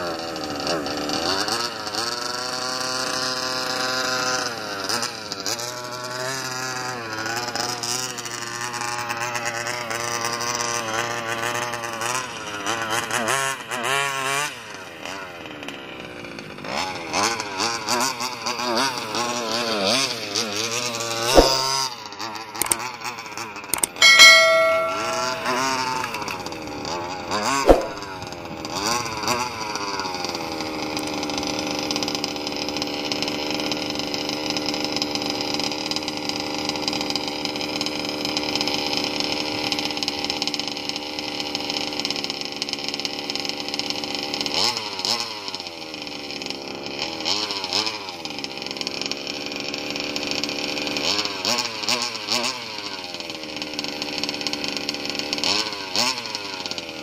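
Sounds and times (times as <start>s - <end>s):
sharp knock: 21.4s - 21.6s, 23.8s - 26.2s, 27.7s - 28.1s.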